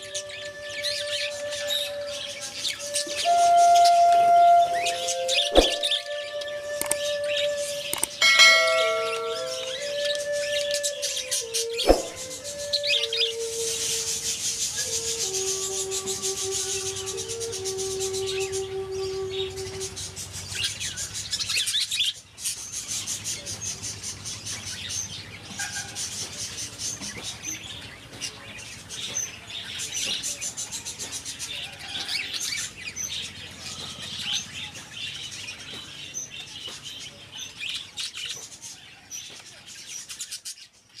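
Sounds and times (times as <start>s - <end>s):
bird chicks chirping: 7.2s - 41.0s.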